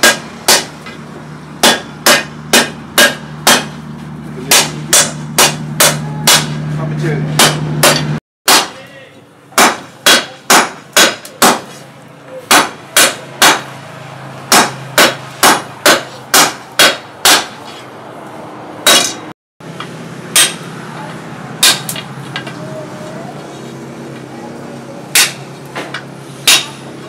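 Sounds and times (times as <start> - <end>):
sledgehammer clanging on anvil: 7.4 - 8.8, 18.8 - 19.3, 20.4 - 20.7, 25.1 - 26.8.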